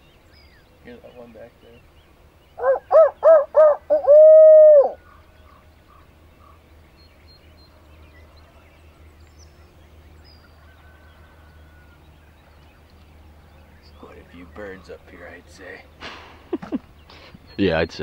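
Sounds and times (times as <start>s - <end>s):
distant turkey gobbles: 2.5s - 6.7s
owl call hoot: 2.6s - 5.2s.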